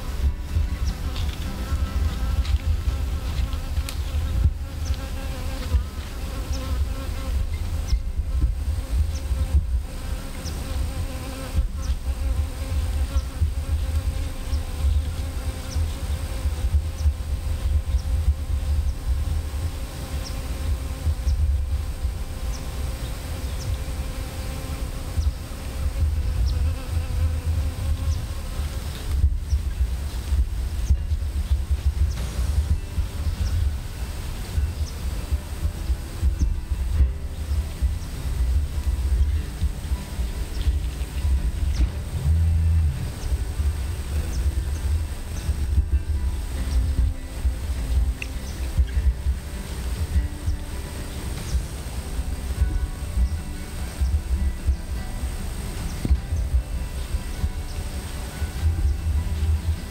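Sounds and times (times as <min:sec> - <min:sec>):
insect buzzing: 0:00.0 - 0:59.9
wind rumble on microphone: 0:00.0 - 0:59.9
low rumble: 0:29.1 - 0:48.2.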